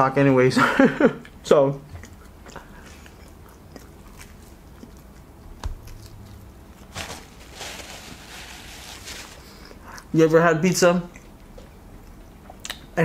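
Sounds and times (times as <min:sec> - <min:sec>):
biting and chewing pizza: 0:01.2 - 0:07.4
wet mouth clicks: 0:11.1 - 0:12.9.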